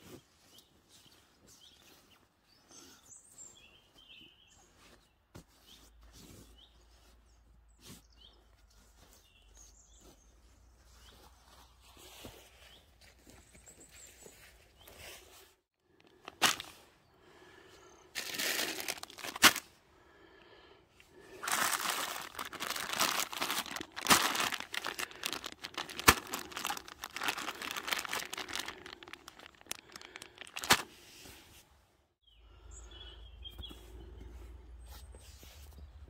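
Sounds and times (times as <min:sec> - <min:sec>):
plastic pouches crinkling: 0:16.0 - 0:16.8, 0:18.1 - 0:19.7, 0:21.2 - 0:31.0.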